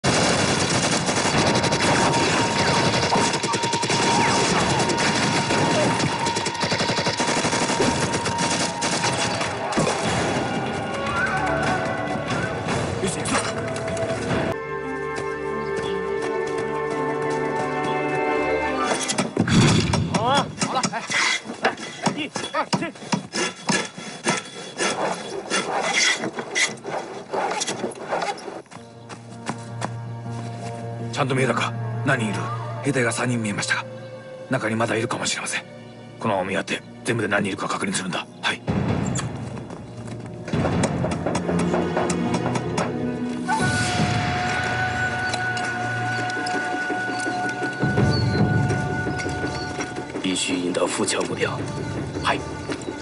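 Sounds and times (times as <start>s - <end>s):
automatic gunfire bursts: 0.0s - 9.4s.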